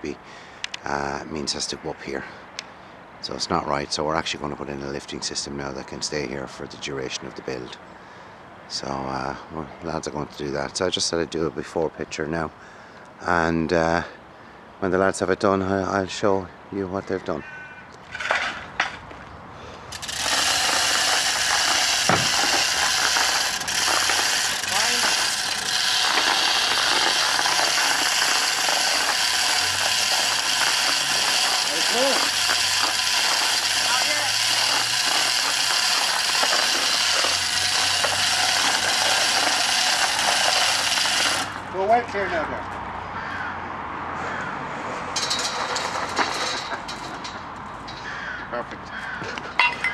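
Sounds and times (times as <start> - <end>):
chain rattling through block: 19.9 - 41.6
pawl ratcheting: 19.9 - 41.7.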